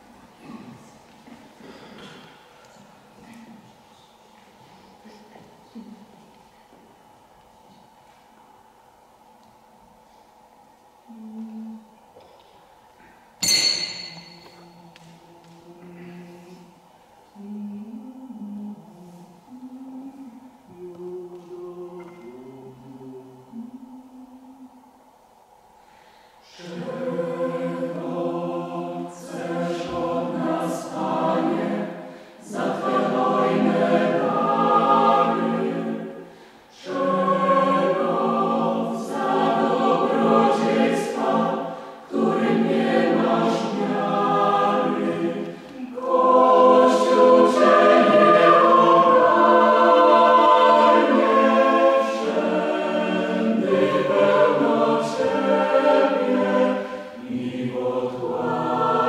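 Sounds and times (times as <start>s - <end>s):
mixed choir singing unaccompanied: 13.4s - 24.9s, 26.4s - 59.0s
singers breathing: 25.7s - 26.6s, 32.0s - 32.5s, 36.1s - 36.8s, 41.6s - 42.1s, 56.8s - 57.2s.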